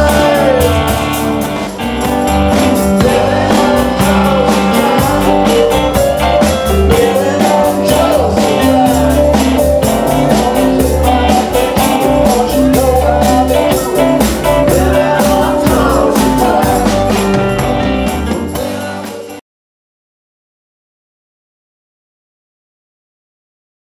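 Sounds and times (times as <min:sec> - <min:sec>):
man singing into microphone: 0:00.0 - 0:01.3, 0:02.9 - 0:06.0, 0:06.8 - 0:17.5, 0:18.5 - 0:19.4
bass: 0:00.0 - 0:19.4
drums: 0:00.0 - 0:19.4
electric guitar: 0:00.0 - 0:19.4.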